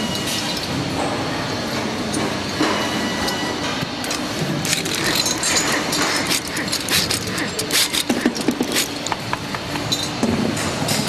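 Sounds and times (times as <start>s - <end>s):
steady background noise: 0.0s - 11.0s
metallic clicks and clinks: 4.0s - 9.2s.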